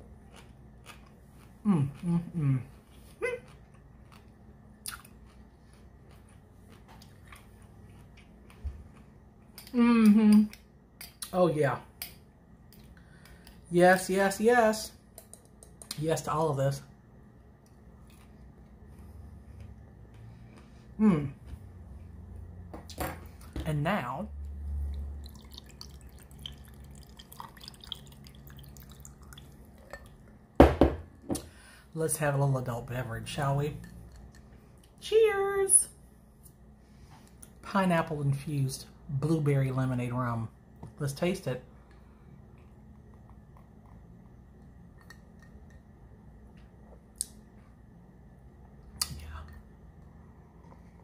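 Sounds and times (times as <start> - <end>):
quiet chewing: 0.0 - 11.3, 17.6 - 21.7, 41.8 - 47.8
wet mouth clicks: 4.8 - 5.2, 49.0 - 49.6
liquid trickling over ice: 24.9 - 30.2.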